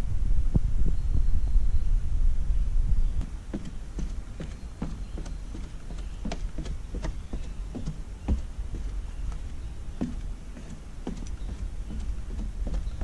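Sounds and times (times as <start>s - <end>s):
low rumble: 0.0s - 3.5s
footsteps on wooden stairs: 3.2s - 13.0s.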